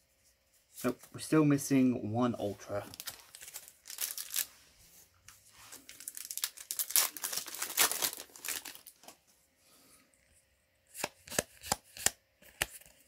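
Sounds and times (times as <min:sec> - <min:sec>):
foil wrapper crinkling and tearing: 0:02.8 - 0:04.5, 0:05.8 - 0:09.1.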